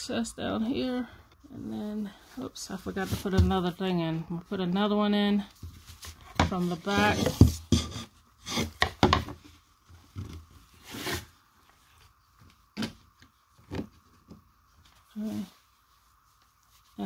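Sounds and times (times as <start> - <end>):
pipe cleaner scraping on wood: 6.5 - 9.0
tulle netting rustling: 14.6 - 17.0.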